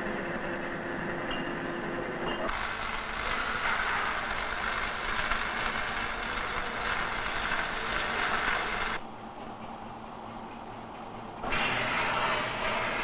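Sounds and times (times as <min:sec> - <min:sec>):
arc welding crackling: 0:02.5 - 0:09.0, 0:11.4 - 0:13.0
gas welding torch hissing: 0:02.5 - 0:09.0, 0:11.4 - 0:13.0.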